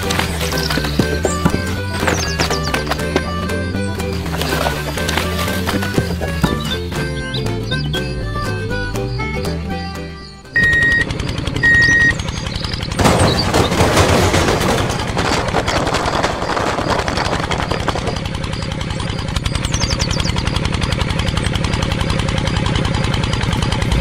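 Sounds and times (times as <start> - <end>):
gravel clattering out of trailer: 0.0 - 6.9, 12.9 - 19.4
small tractor engine chugging: 0.0 - 24.0.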